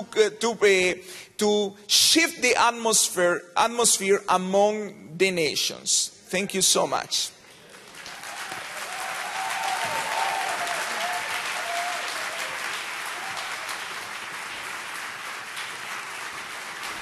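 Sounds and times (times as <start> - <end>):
audience applauding: 7.6 - 17.0.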